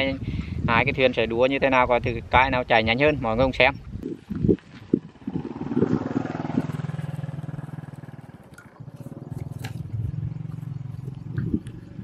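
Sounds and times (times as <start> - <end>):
small engine chugging: 5.1 - 12.0.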